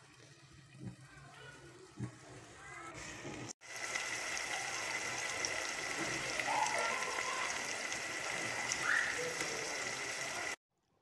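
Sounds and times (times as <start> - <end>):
chicken sizzling in oil: 0.0 - 10.6.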